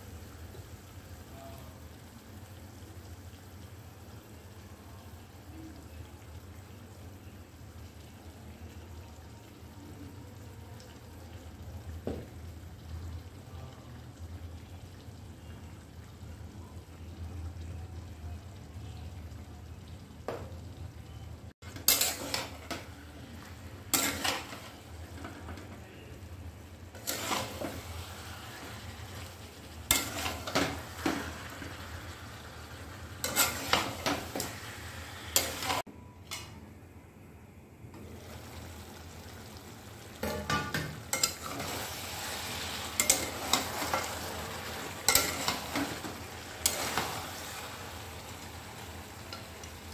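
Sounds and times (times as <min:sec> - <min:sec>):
chicken sizzling faintly: 0:00.0 - 0:49.9
metal spatula scraping pan: 0:21.7 - 0:22.9, 0:23.9 - 0:24.9, 0:27.0 - 0:29.3, 0:29.9 - 0:31.5, 0:33.2 - 0:35.8, 0:40.2 - 0:47.8.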